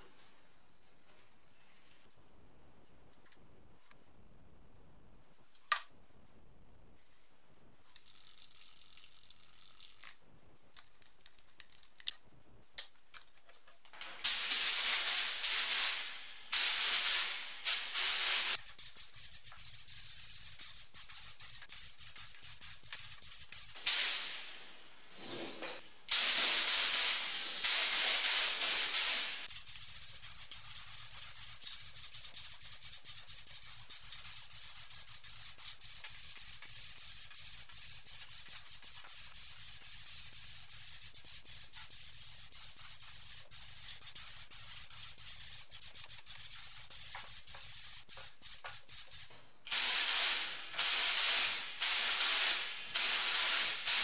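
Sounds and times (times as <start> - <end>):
quiet steady hiss: 0.0 - 8.1
spray gun hissing bursts: 14.0 - 25.5, 26.1 - 54.0.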